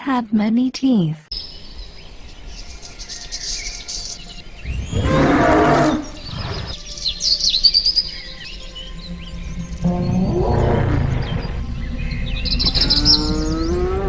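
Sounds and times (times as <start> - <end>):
birds chirping: 0.1 - 14.0
dinosaur bellowing call: 4.6 - 6.8, 9.8 - 11.9, 12.6 - 14.0.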